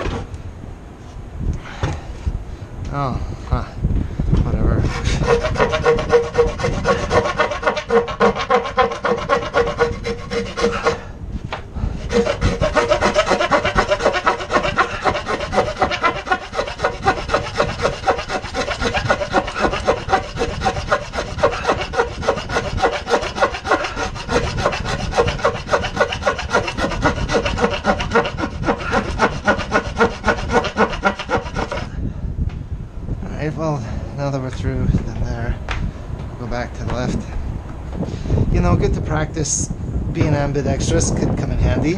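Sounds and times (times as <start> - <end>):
handsaw cutting wood: 4.8 - 11.0, 12.0 - 31.9.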